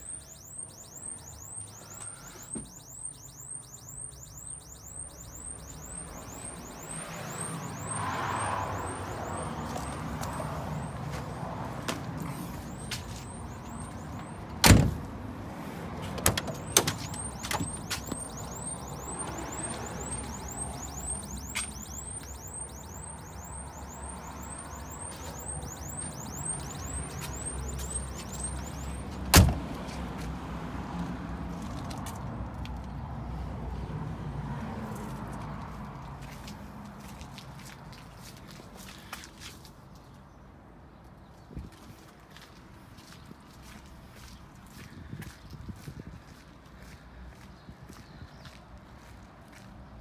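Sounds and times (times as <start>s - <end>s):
high chirp: 0.0s - 11.5s, 12.4s - 14.5s, 16.5s - 29.1s
cab door slamming shut: 14.6s - 15.0s, 29.3s - 29.6s.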